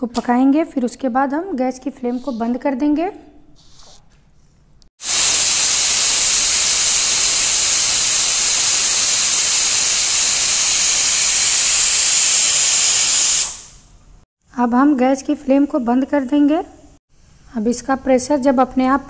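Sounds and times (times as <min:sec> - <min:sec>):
pressure cooker steam hiss: 0:05.0 - 0:13.9.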